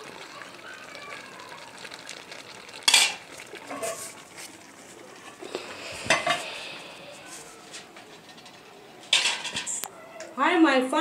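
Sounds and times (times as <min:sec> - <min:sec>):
spoons clattering in metal bowl: 0:02.8 - 0:04.1, 0:09.1 - 0:09.8
metal lid clanking onto pot: 0:02.9 - 0:04.0, 0:09.1 - 0:09.7.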